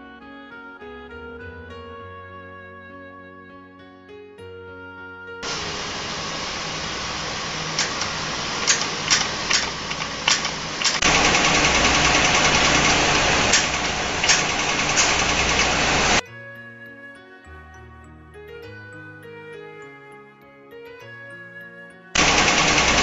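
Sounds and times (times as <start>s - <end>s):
steady hiss: 5.4s - 16.2s
laser welder popping: 7.3s - 16.2s, 22.2s - 23.0s.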